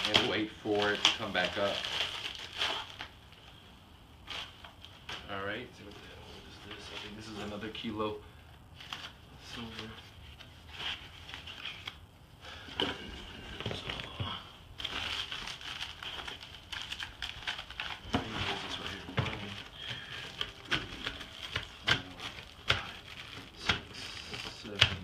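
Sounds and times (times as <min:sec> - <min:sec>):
paper and plastic crinkling: 0:00.0 - 0:03.6, 0:04.2 - 0:08.1, 0:08.7 - 0:25.0
cardboard scraping: 0:12.6 - 0:25.0.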